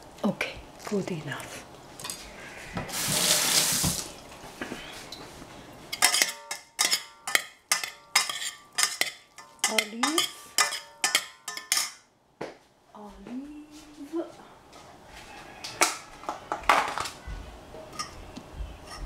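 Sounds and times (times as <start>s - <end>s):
metal spoons clinking on pot: 5.9s - 12.0s.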